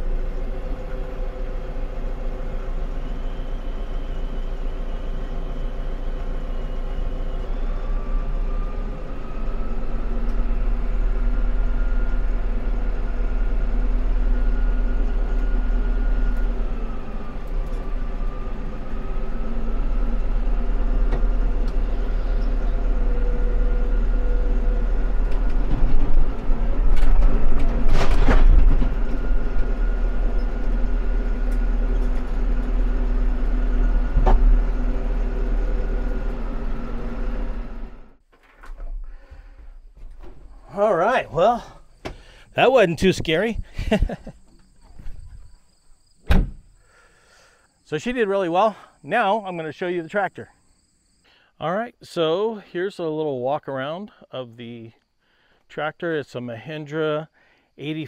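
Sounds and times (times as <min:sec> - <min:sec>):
tractor diesel engine running: 0:00.0 - 0:45.6, 0:46.4 - 0:50.5
loud clatter: 0:25.3 - 0:29.7.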